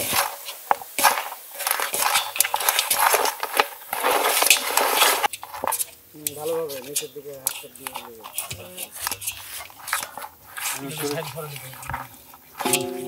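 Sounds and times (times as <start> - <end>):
hands squishing raw meat: 0.0 - 13.0
knocks and clinks on metal bowl: 12.6 - 13.0.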